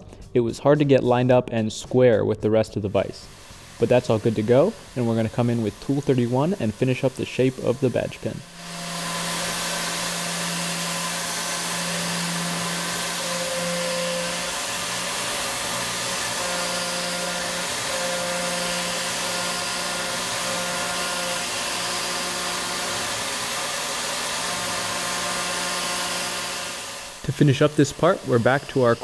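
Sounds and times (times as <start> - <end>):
high whine: 3.0 - 29.0
steady hum: 3.0 - 29.0
coolant spray hiss: 3.2 - 8.1
milling machine cutting metal: 3.2 - 29.0.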